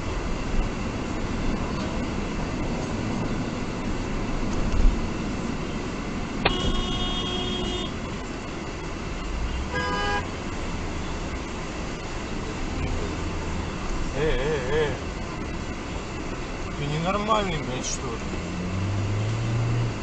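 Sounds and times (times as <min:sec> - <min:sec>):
road and engine noise inside car: 0:00.0 - 0:20.0
car horn toots: 0:06.4 - 0:08.0, 0:09.7 - 0:10.4.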